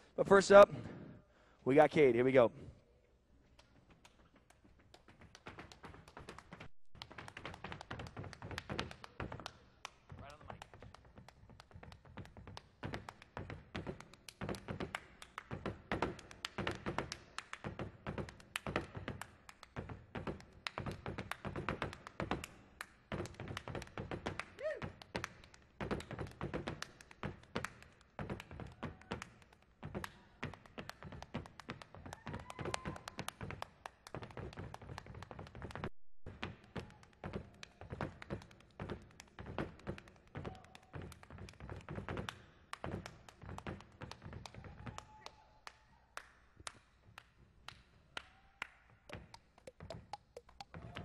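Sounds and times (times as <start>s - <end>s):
hands tapping and slapping body: 3.5s - 45.3s, 46.2s - 51.0s.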